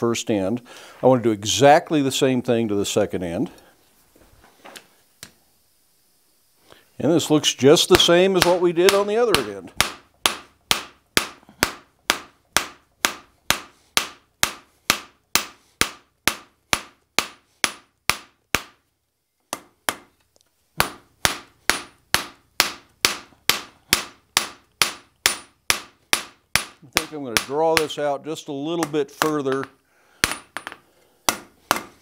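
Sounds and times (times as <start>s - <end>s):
hammer striking steel on anvil: 20.8s - 28.0s.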